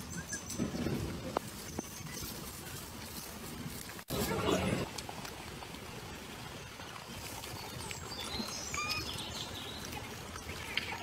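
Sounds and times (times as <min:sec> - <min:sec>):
steady outdoor hiss: 0:00.0 - 0:11.0
high chirps: 0:08.7 - 0:09.2.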